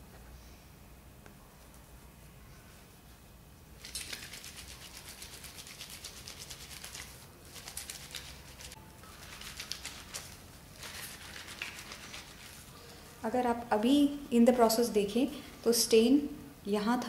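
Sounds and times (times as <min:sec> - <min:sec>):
crackling soap suds: 0:04.2 - 0:12.7.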